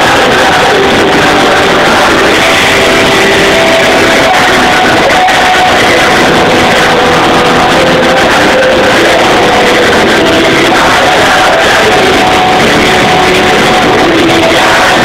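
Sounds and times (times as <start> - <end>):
rock band playing live: 0.0 - 15.0.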